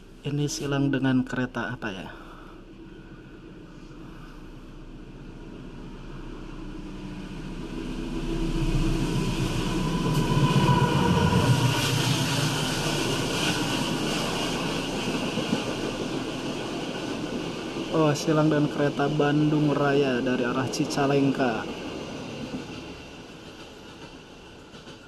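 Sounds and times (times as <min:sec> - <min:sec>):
diesel locomotive engine passing: 0:01.2 - 0:25.0
train wheels rumbling and clattering: 0:04.7 - 0:25.0.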